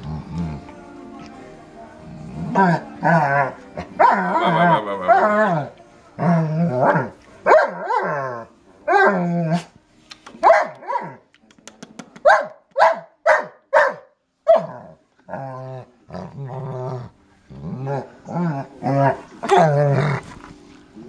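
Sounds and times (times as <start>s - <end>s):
dog howling: 2.4s - 9.6s.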